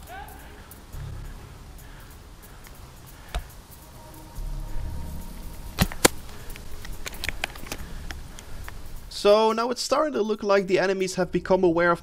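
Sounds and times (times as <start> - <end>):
airsoft rifle shot cracks: 5.8 - 6.2.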